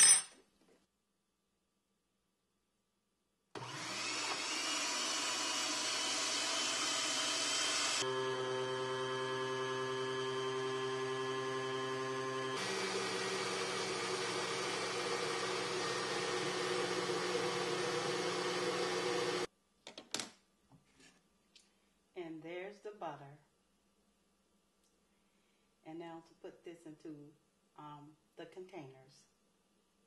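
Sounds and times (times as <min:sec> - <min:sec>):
blender motor running: 0:03.6 - 0:19.5.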